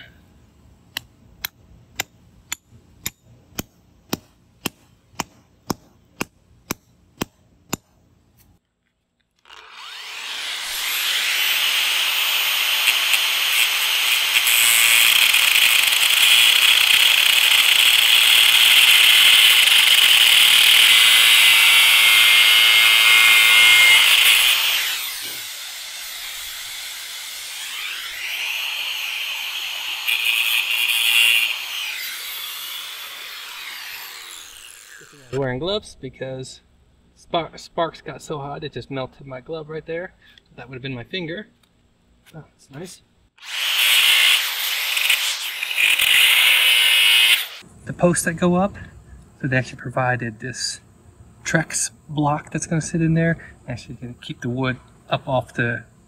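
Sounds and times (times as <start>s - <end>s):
angle grinder cutting steel: 9.4s - 35.4s, 43.4s - 47.6s.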